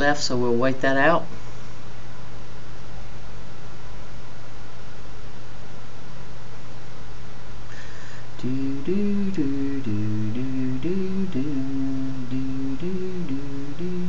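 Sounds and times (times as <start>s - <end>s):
person humming a tune: 8.3s - 14.0s.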